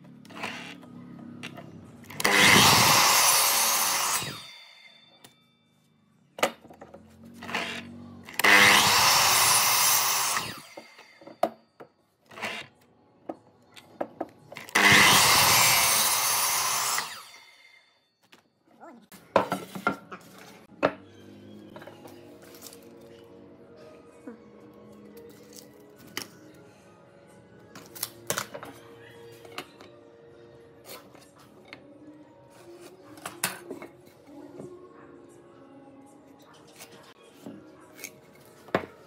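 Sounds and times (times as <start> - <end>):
miter saw cutting wood: 2.2 - 4.6, 7.4 - 11.1, 14.6 - 17.6
saw blade whining down: 2.2 - 4.9, 7.7 - 11.2, 14.7 - 17.8.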